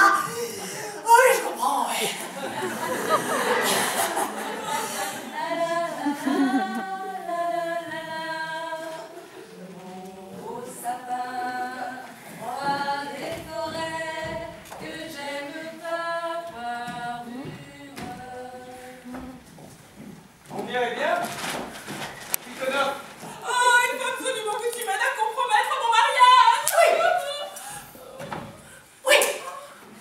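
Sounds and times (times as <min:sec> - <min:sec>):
women singing unaccompanied: 0:04.6 - 0:19.5, 0:23.4 - 0:29.7.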